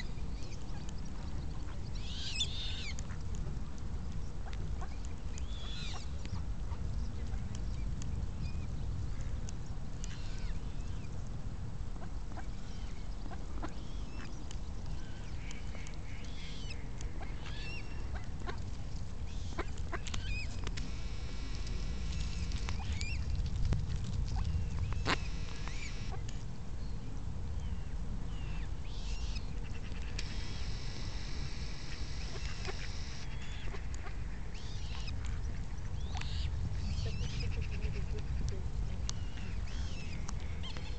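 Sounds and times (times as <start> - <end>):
steady low rumble: 0.0 - 40.9
ducks quacking: 30.0 - 34.3.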